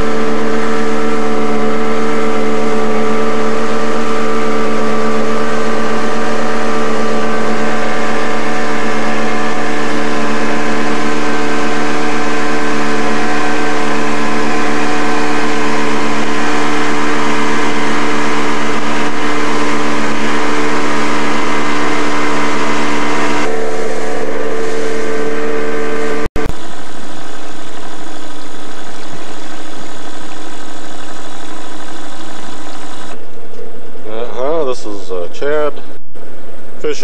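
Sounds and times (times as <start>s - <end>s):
motorboat engine drone: 0.0s - 36.9s.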